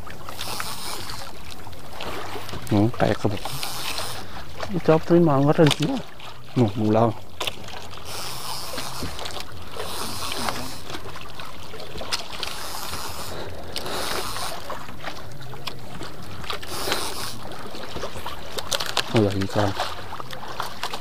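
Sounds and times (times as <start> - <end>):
water lapping against boat hull: 0.0 - 21.0.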